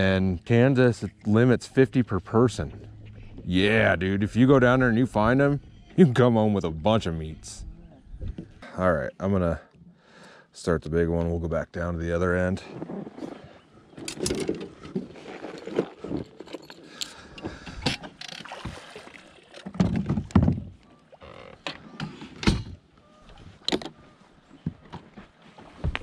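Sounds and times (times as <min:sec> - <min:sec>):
metal knocks and clunks: 0:19.7 - 0:20.8.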